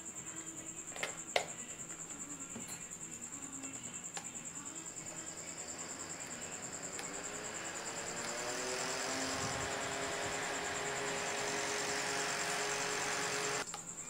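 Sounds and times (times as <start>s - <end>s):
electric fan motor hum: 1.1s - 13.7s
pulsing high-pitched whine: 3.0s - 13.6s.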